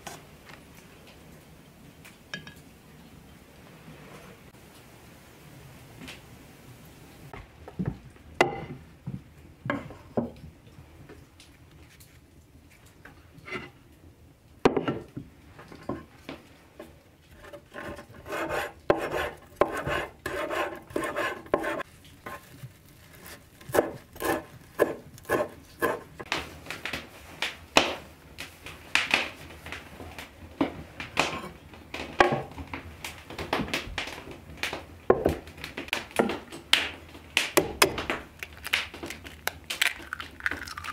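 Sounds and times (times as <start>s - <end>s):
knife chopping on wooden board: 23.7s - 26.1s.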